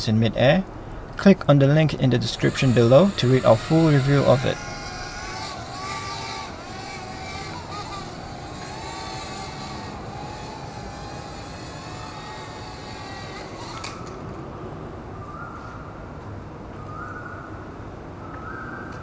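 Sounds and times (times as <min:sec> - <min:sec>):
quadcopter propellers whining: 0:01.4 - 0:14.4.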